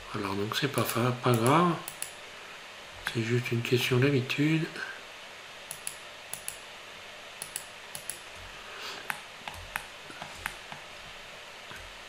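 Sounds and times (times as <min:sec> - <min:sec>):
steady low hiss: 0:00.0 - 0:12.0
mouse and keyboard clicks: 0:00.8 - 0:02.2, 0:05.7 - 0:06.6, 0:07.4 - 0:08.2, 0:09.0 - 0:10.8.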